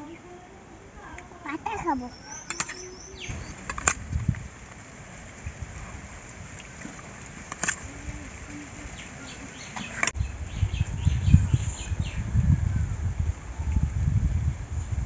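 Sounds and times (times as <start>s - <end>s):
faint bird chirping: 0.0s - 3.7s, 7.9s - 13.0s
low rumbling on microphone: 0.0s - 15.0s.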